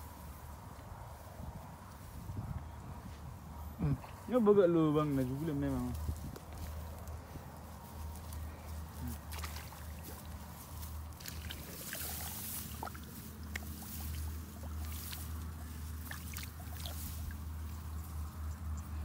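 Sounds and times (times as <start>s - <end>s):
leaves rustling against phone: 4.2s - 18.8s.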